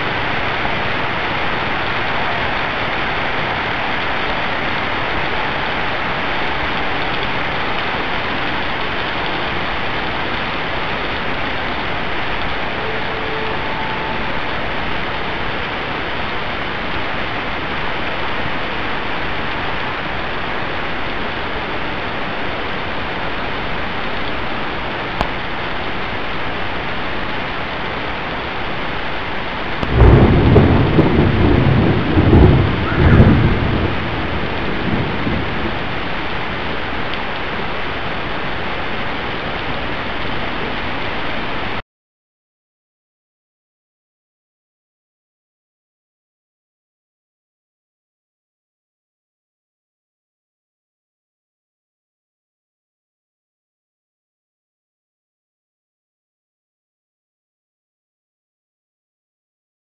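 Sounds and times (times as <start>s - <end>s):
heavy rain on street: 0.0s - 41.8s
thunder rumbling: 29.8s - 38.4s.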